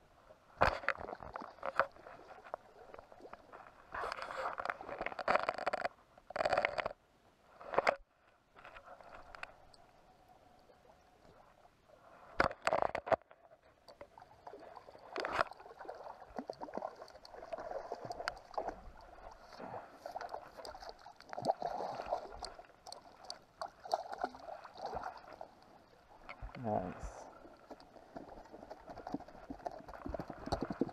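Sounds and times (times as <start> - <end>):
fish splashing and thrashing: 0.6 - 7.0, 12.3 - 25.6, 27.3 - 30.9
water slapping and sloshing: 14.0 - 26.6, 27.2 - 30.9.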